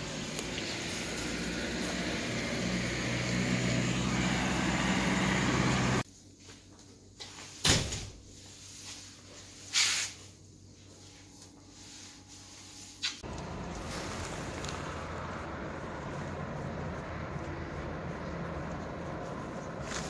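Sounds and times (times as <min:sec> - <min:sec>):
vehicle rumble with low hum: 0:00.0 - 0:06.1, 0:13.2 - 0:20.0
brief hiss: 0:09.7 - 0:10.2.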